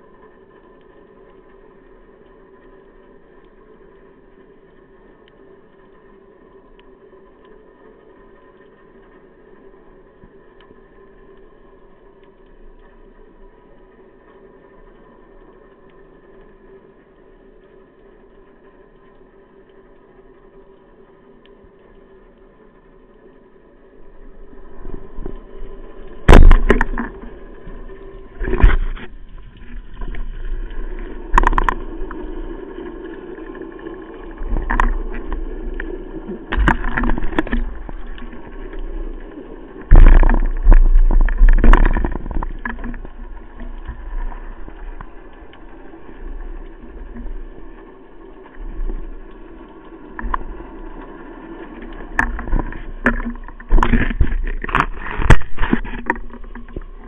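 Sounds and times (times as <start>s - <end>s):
muffled underwater noise: 13.0s - 57.0s
water swishing: 20.9s - 57.0s.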